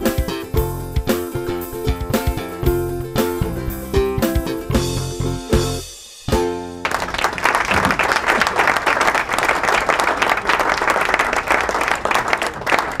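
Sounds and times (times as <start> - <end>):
audience applause: 6.8 - 13.0.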